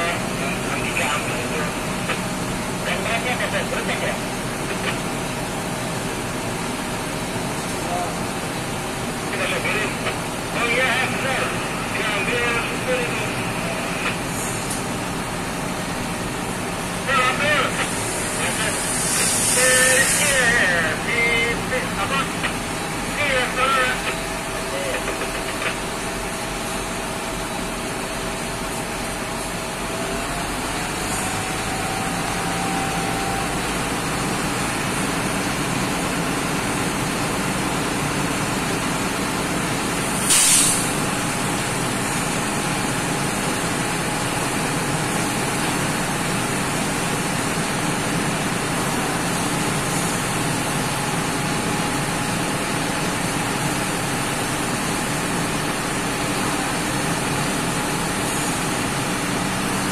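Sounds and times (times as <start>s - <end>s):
truck engine running: 0.0s - 59.9s
short sharp air hiss: 18.8s - 20.2s, 40.2s - 41.0s.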